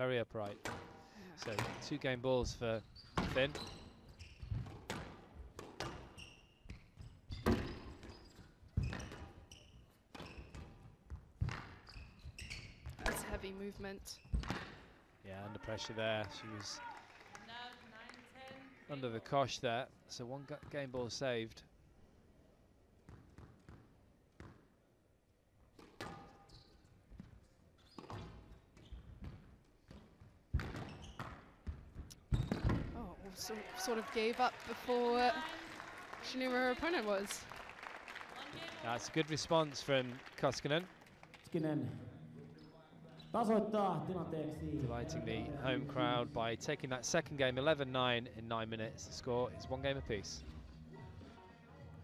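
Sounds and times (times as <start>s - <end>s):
shoes squeaking on court: 2.5s - 14.8s, 25.7s - 34.3s.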